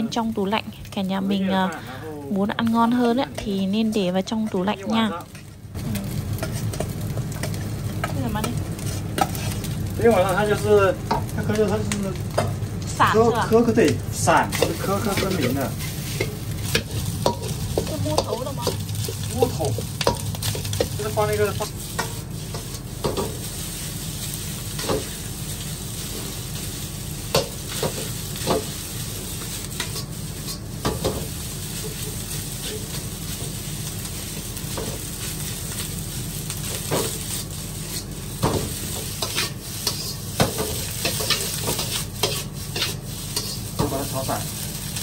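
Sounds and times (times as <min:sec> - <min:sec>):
food sizzling in a wok: 0:00.0 - 0:45.0
metal spatula scraping a pan: 0:08.8 - 0:09.7, 0:14.5 - 0:23.4, 0:36.8 - 0:44.0.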